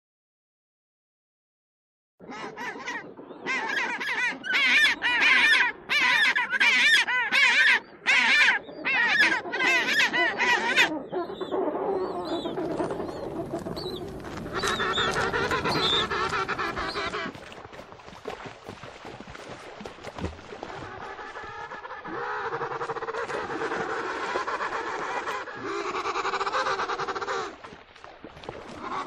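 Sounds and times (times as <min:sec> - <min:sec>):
penguins braying: 0:04.6 - 0:17.3.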